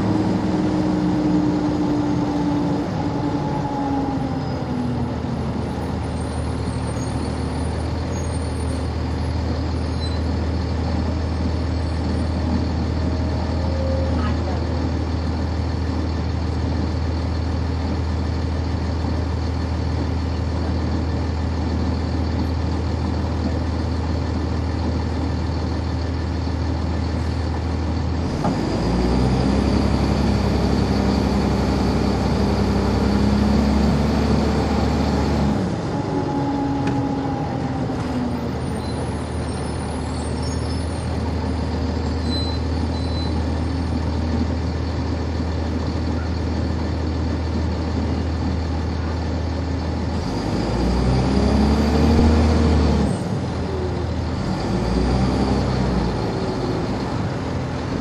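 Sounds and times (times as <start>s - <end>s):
bus diesel engine idling: 0.0s - 58.0s.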